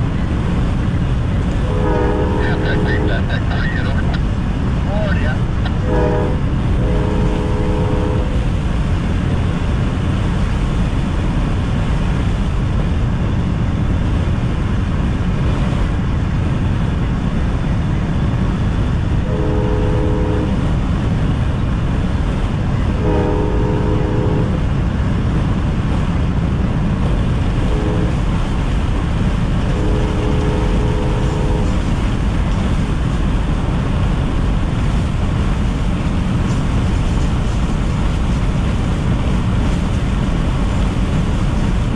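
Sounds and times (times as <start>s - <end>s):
road and wind noise in car: 0.0s - 41.9s
locomotive horn blowing: 1.5s - 3.3s, 5.7s - 8.6s, 19.2s - 20.8s, 22.8s - 24.7s, 27.1s - 28.8s, 29.5s - 32.1s.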